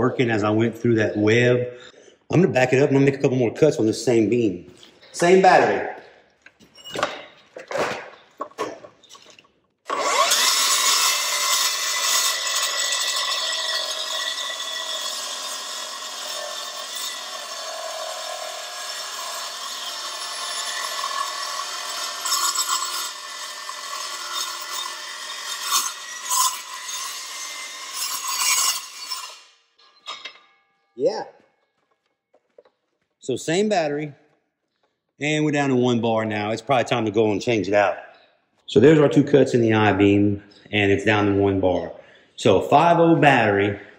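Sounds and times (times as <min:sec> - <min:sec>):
circular saw cutting steel: 0:09.9 - 0:30.6.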